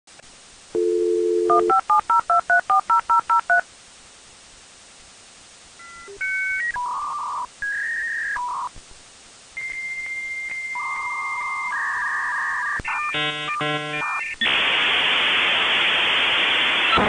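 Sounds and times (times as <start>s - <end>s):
telephone dial tone: 0.8s - 1.8s.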